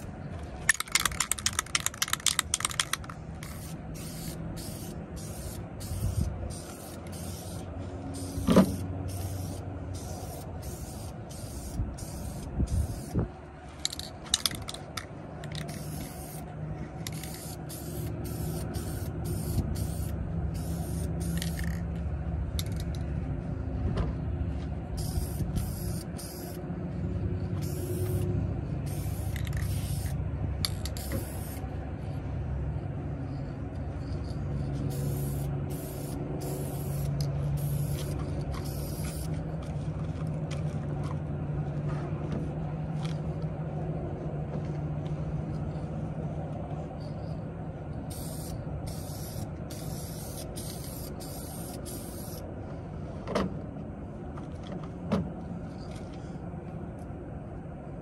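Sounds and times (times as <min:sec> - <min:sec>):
low engine hum: 0:00.0 - 0:58.0
spray paint can hissing: 0:00.7 - 0:13.2, 0:15.5 - 0:16.5, 0:17.1 - 0:21.8, 0:25.0 - 0:26.6, 0:27.6 - 0:31.6, 0:34.8 - 0:39.3, 0:48.1 - 0:52.4.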